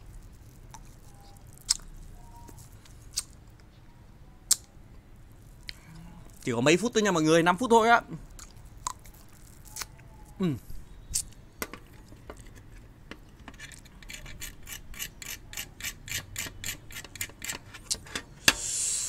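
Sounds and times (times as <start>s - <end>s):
brief hiss: 18.4s - 19.0s.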